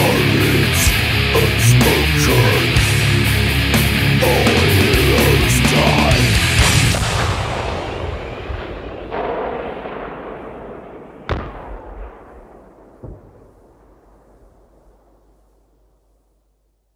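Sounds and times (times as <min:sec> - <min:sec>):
explosion rumble: 0:00.0 - 0:15.3
sharp gunshots: 0:06.4 - 0:14.4.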